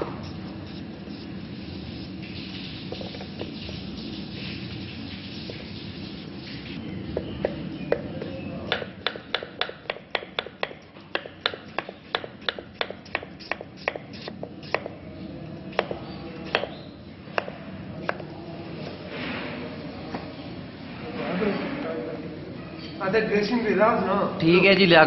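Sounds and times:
knife tapping wooden board: 0:07.4 - 0:14.0, 0:15.8 - 0:16.8.

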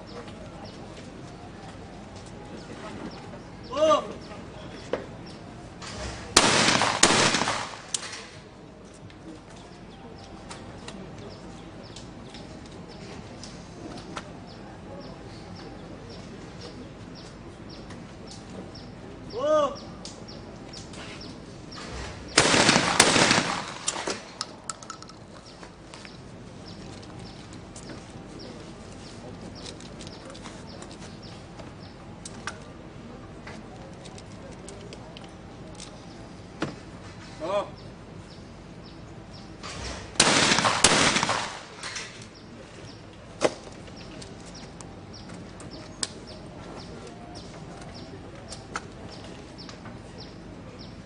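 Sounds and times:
birds chirping faintly: 0:00.0 - 0:06.3, 0:07.1 - 0:51.0
shotgun shots: 0:05.8 - 0:08.4, 0:21.8 - 0:24.6, 0:39.7 - 0:42.0
sharp crack: 0:05.8 - 0:08.5, 0:21.8 - 0:25.2, 0:39.6 - 0:42.3.

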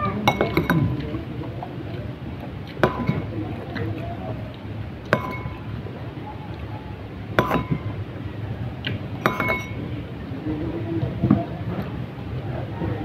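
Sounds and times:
shells and dishes clinking: 0:00.2 - 0:01.1, 0:02.8 - 0:03.5, 0:05.1 - 0:05.8, 0:07.4 - 0:08.0, 0:09.2 - 0:09.9.

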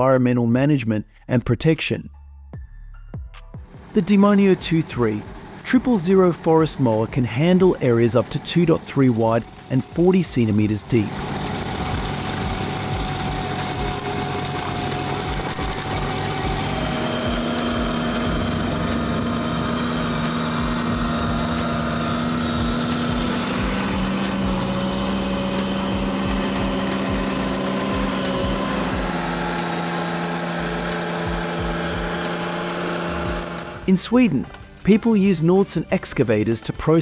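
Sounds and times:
tractor engine under load: 0:03.8 - 0:35.0
mulcher rotor grinding soil: 0:03.8 - 0:35.2.

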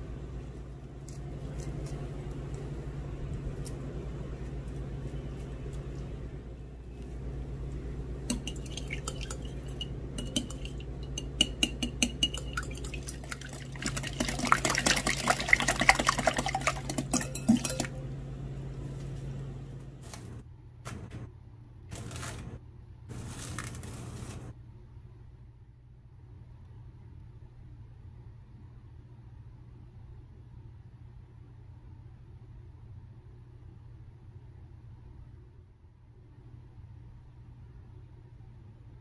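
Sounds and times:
steady low hum: 0:00.0 - 0:39.0
utensils clattering against dishes: 0:08.3 - 0:13.4, 0:16.6 - 0:18.0.

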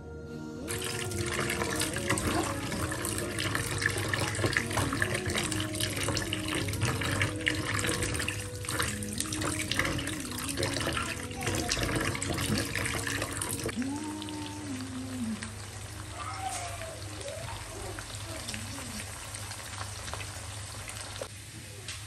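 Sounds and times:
background music: 0:00.0 - 0:16.1
hand swishing water: 0:00.7 - 0:13.8
tap water running: 0:00.7 - 0:21.4.

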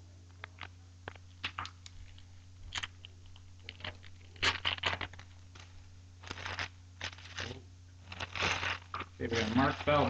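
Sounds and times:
wrapper tearing and crinkling: 0:01.4 - 0:10.0.

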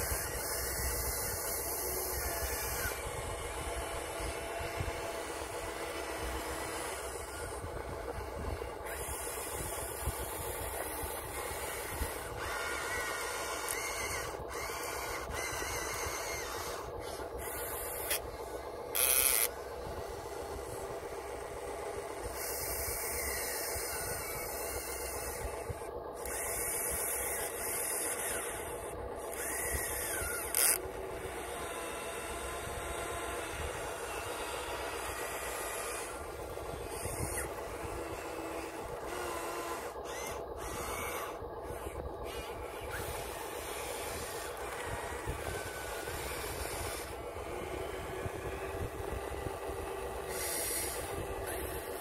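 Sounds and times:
electric motors whining: 0:00.0 - 0:52.0.

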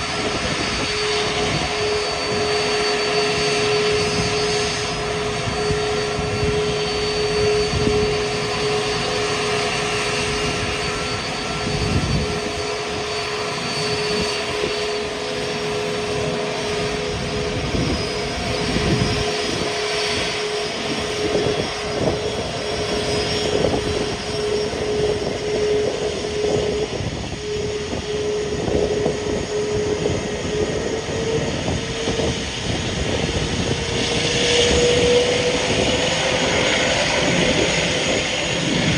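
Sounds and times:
jet engines whining and rumbling: 0:00.0 - 0:38.9.

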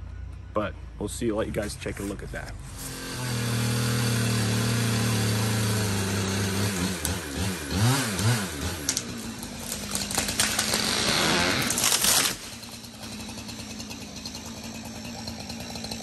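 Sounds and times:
chainsaw cutting and revving: 0:02.6 - 0:16.0
tree cracking and falling: 0:05.5 - 0:16.0.

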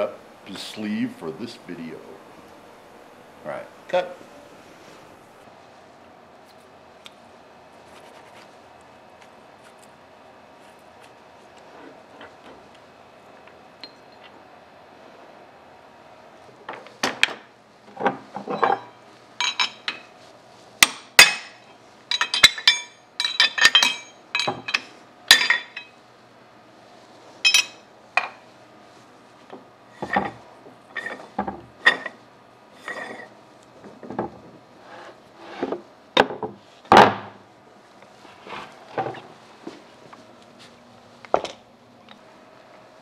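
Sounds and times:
metal tools clinking and clanking: 0:18.4 - 0:20.1, 0:21.2 - 0:26.0, 0:27.4 - 0:28.4.

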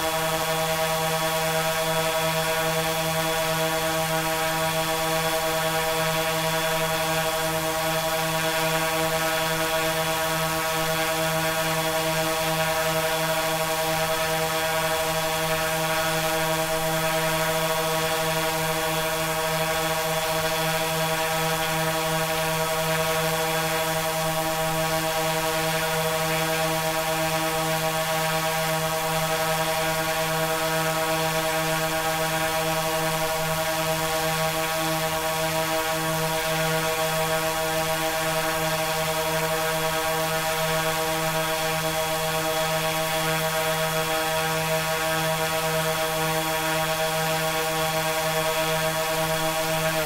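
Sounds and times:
steady pitched drone: 0:47.2 - 0:50.0.

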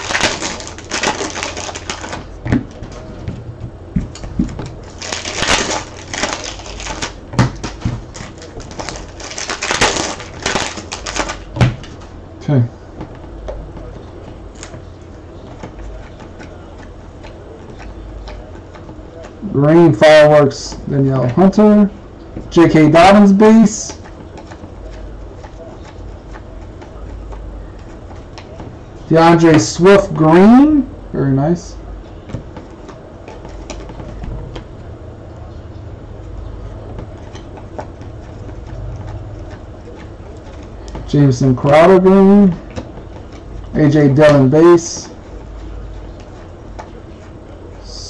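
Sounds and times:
cards clicking and rustling: 0:00.0 - 0:03.2, 0:04.1 - 0:12.1, 0:32.2 - 0:34.7
low steady hum: 0:00.0 - 0:48.0.

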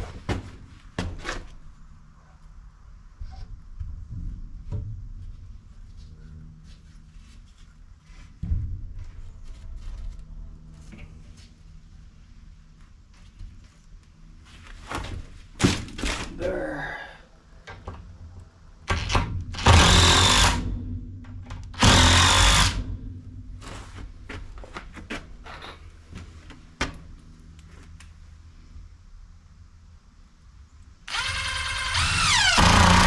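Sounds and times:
impact driver driving screws: 0:19.0 - 0:20.6, 0:21.8 - 0:22.8, 0:31.1 - 0:33.0.

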